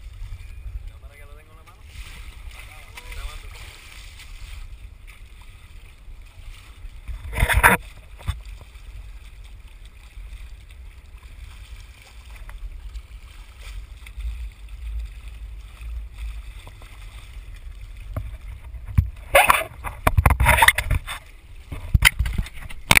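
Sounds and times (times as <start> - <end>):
wind rumble on microphone: 0.0 - 23.0.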